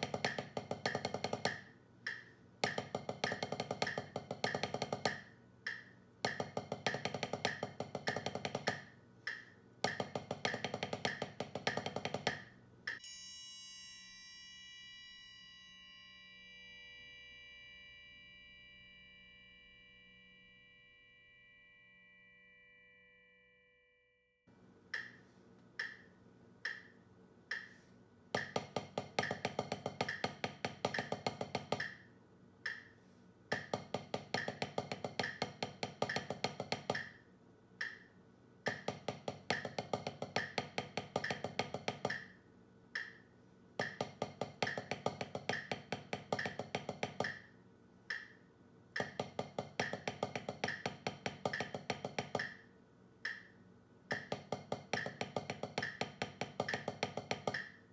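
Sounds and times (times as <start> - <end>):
drumsticks on practice pad: 0.0 - 13.1, 24.9 - 37.2, 37.8 - 42.4, 43.0 - 47.5, 48.1 - 48.4, 49.0 - 57.9
metronome clicking: 0.2 - 13.1, 25.0 - 25.2, 25.8 - 27.8, 32.6 - 32.9, 37.8 - 38.1, 43.0 - 43.2, 48.1 - 48.4, 53.2 - 54.4.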